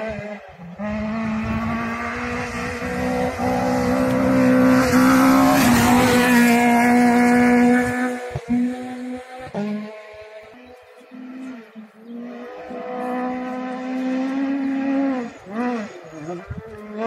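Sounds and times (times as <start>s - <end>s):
rally car engine at high revs: 0.0s - 17.0s.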